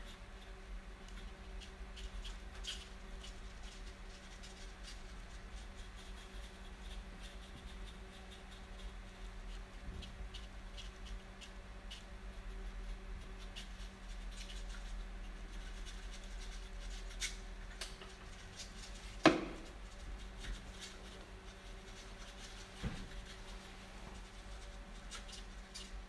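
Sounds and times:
faint steady hum: 0.0 - 26.0
sharp knock: 19.2 - 19.7.

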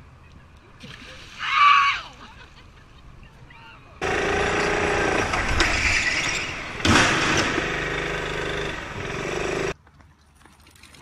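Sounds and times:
go-kart engine running: 4.0 - 9.8
loud hit or scrape: 5.2 - 8.6.

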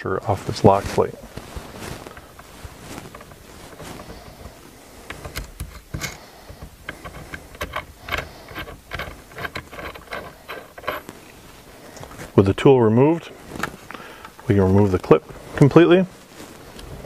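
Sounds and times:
small metal clicks and knocks: 5.1 - 11.1.

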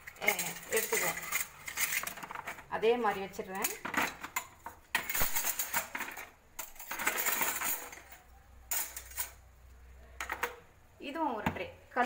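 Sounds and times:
steel utensils clattering: 0.0 - 9.4.

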